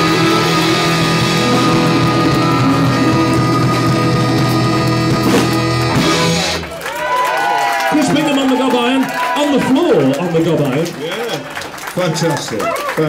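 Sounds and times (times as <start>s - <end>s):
live rock band with saxophones: 0.0s - 6.8s.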